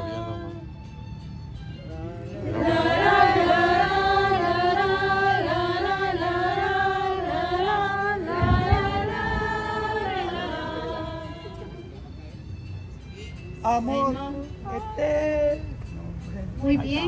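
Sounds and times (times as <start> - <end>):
low bumps: 7.6 - 10.2.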